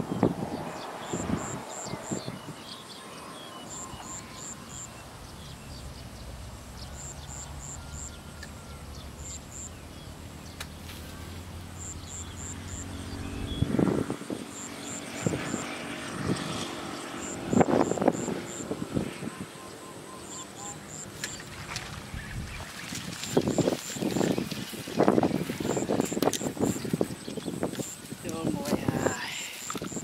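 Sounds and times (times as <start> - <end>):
motorbike engine droning: 3.7 - 22.0.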